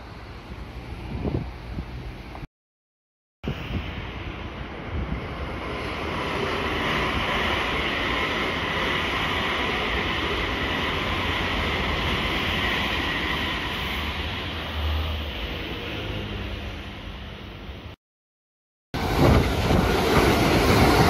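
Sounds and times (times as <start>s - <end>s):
train wheels rushing on rails: 3.5s - 16.4s, 19.0s - 21.0s.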